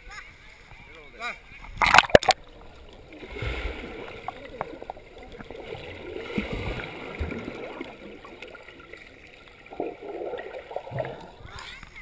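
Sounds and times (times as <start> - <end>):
muffled underwater sloshing: 1.5 - 12.0
underwater thumps and clicks: 1.7 - 12.0
rush of water: 1.8 - 12.0.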